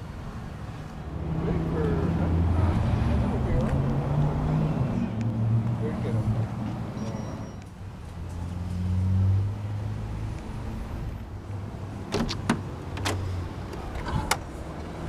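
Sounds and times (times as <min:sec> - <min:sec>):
low vehicle hum: 0:00.0 - 0:15.0
car door handle and latch clicks: 0:12.1 - 0:14.5.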